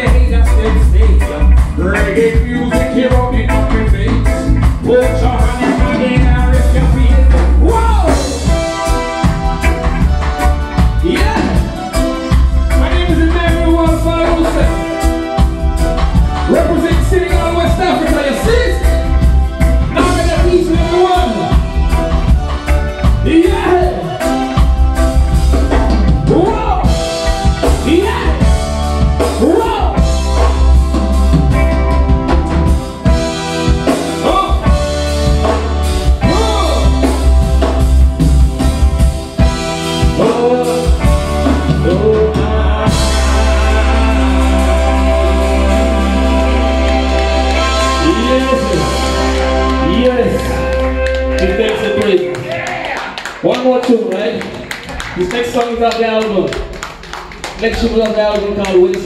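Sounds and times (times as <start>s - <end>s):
man singing: 0.0s - 8.5s, 11.0s - 11.8s, 23.2s - 24.6s, 26.3s - 28.6s, 36.2s - 37.4s, 40.0s - 52.7s
heavy bass line: 0.0s - 52.6s
reggae band playing: 0.0s - 59.0s
person singing: 40.0s - 52.8s.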